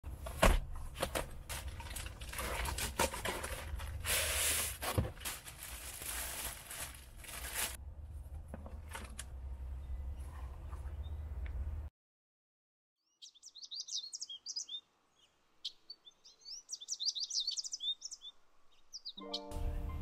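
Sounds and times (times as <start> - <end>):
rustling and clicking handling noise: 0.1 - 9.4.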